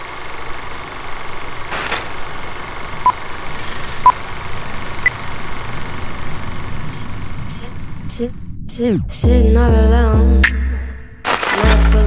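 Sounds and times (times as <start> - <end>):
film projector whir and crackle: 0.0 - 6.8.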